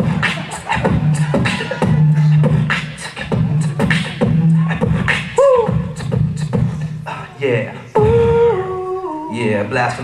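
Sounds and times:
hummed bass line: 0.0s - 6.9s
vocal swoop: 0.0s - 9.4s
human beatbox rhythm: 0.0s - 10.0s.

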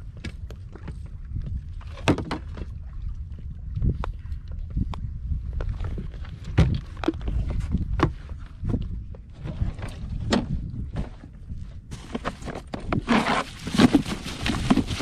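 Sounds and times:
net and cooler lid handled: 11.9s - 15.0s
fish thrashing in plastic cooler: 12.1s - 15.0s.

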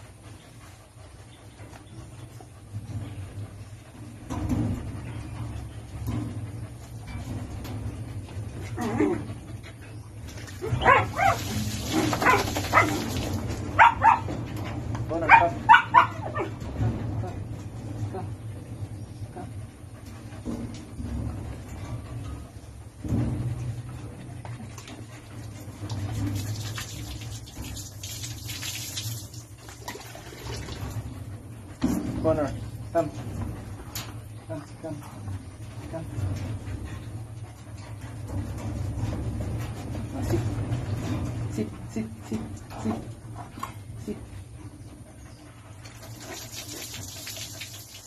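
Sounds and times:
water pouring and splashing: 10.2s - 13.8s, 24.7s - 31.2s, 45.8s - 48.0s
water splashing: 26.1s - 31.0s.

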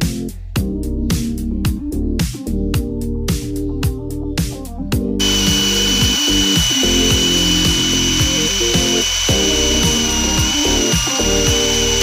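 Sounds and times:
background music with steady beat: 0.0s - 12.0s
electric motor whine: 5.2s - 12.0s.

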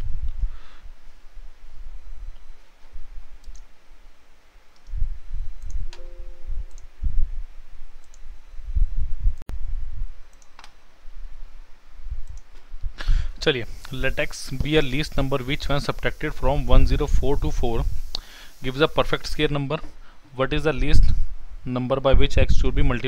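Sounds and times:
computer mouse clicks: 3.4s - 3.7s, 4.7s - 5.0s, 6.7s - 6.9s, 8.0s - 8.2s, 10.3s - 10.8s, 12.2s - 12.5s
low beep: 6.0s - 6.8s.

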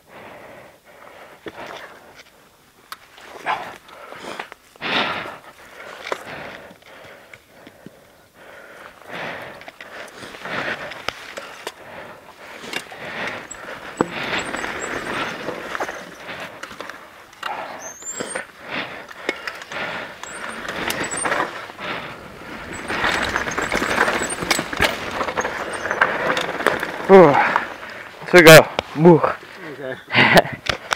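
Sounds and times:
tyres rolling over dirt and stones: 9.0s - 29.4s
bike rattling and knocking: 12.4s - 18.5s, 19.2s - 28.2s.

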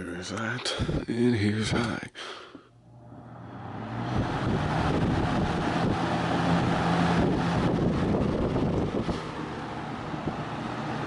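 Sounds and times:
box fan motor hum: 2.8s - 11.0s.

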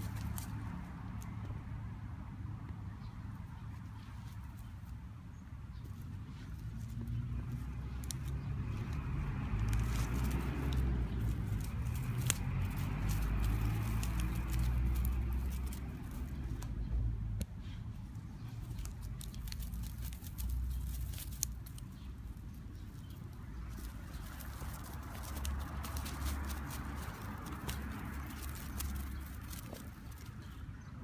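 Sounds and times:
light clicks and rustles: 0.0s - 1.6s, 5.7s - 30.6s.

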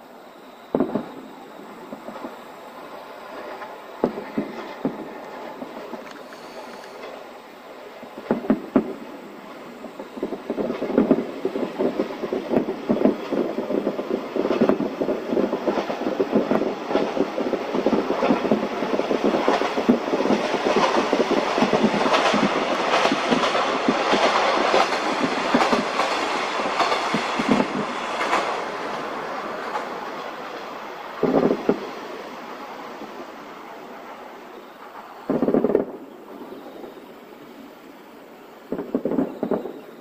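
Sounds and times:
fireworks bangs and crackling: 0.0s - 40.0s.

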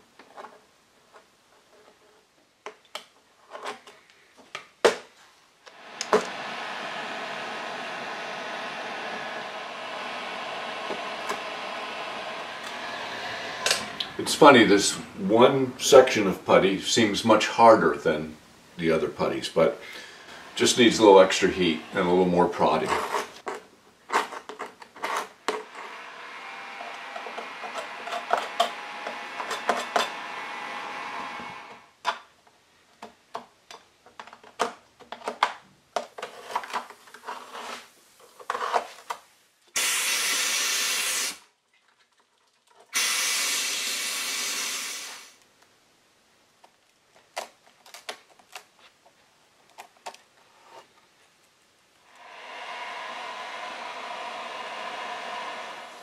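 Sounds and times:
heat gun blowing: 5.7s - 16.4s, 19.8s - 23.4s, 25.7s - 31.9s, 39.8s - 41.5s, 42.9s - 45.4s, 52.1s - 56.0s.

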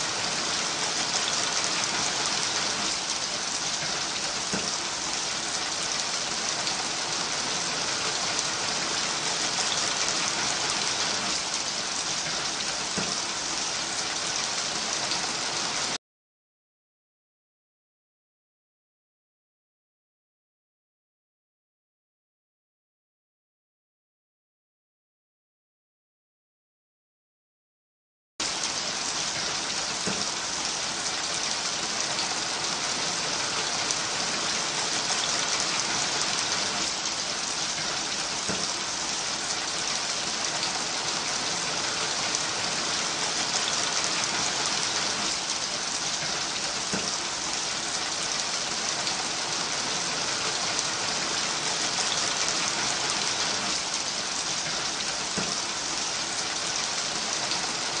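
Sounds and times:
steady rain: 0.0s - 16.0s, 28.4s - 58.0s.

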